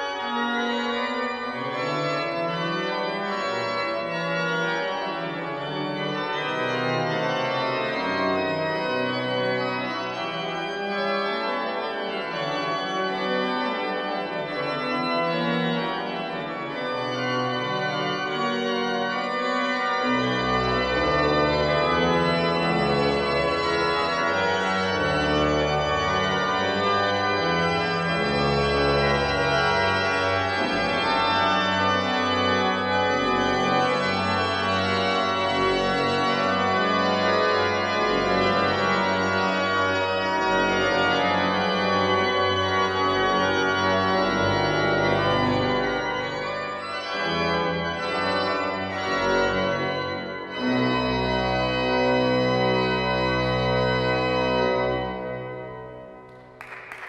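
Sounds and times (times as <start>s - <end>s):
church pipe organ playing: 0.0s - 57.0s.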